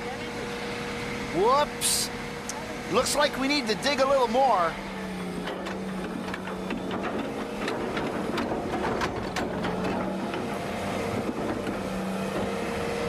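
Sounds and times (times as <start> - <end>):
excavator diesel engine running: 0.0 - 13.0
bucket knocking and clattering: 5.4 - 10.5.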